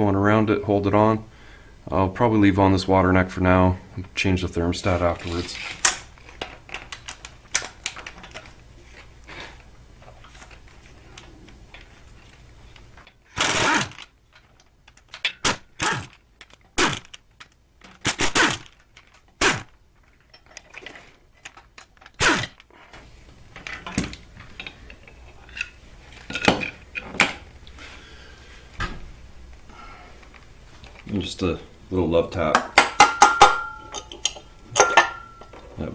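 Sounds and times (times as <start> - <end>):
pneumatic air ratchet bursts: 13.3 - 14.0, 15.4 - 16.1, 18.0 - 18.7, 19.4 - 19.7, 22.2 - 22.6
metal clinks of bolts and tools: 32.6 - 35.7.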